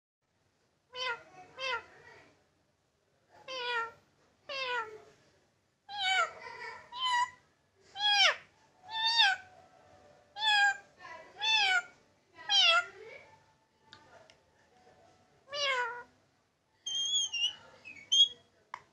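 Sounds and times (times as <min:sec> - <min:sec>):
parakeet mimicking cat meows: 0:00.9 - 0:01.9, 0:03.5 - 0:05.0, 0:05.9 - 0:06.3, 0:06.9 - 0:07.4, 0:08.0 - 0:09.5, 0:10.4 - 0:11.9, 0:12.5 - 0:12.9, 0:15.5 - 0:16.1, 0:16.9 - 0:18.3.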